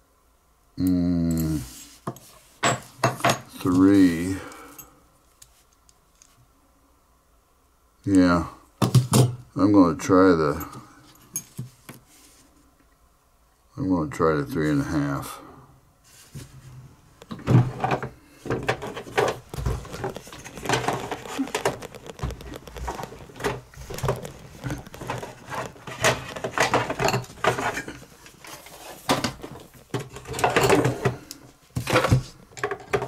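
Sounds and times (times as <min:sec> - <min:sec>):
hand tools clicking and clinking: 0:18.6 - 0:28.4.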